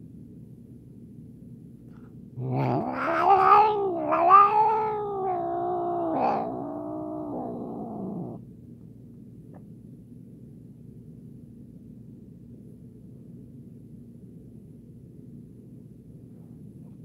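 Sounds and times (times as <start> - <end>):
low background noise: 0.0 - 17.0
cat yowling: 2.4 - 8.4.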